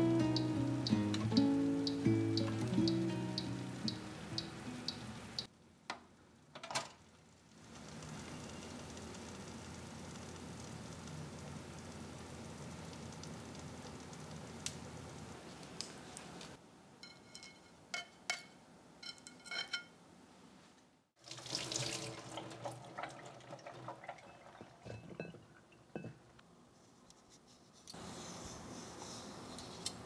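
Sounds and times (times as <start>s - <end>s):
glassware clinking: 24.0s - 26.2s
pot and utensils knocking: 24.0s - 26.3s.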